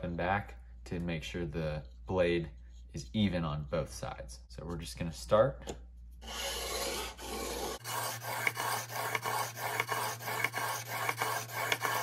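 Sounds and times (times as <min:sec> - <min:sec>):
steel blade rasping on sandpaper: 0:06.2 - 0:12.0.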